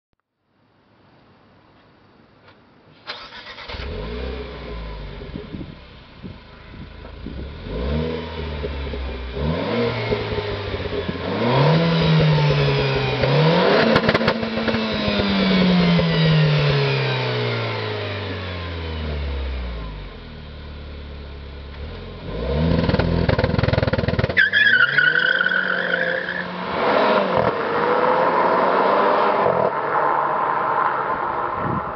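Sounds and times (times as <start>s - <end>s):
car starting up: 3.0s - 7.6s
car engine revving: 3.1s - 30.0s
car pulling away: 3.1s - 30.6s.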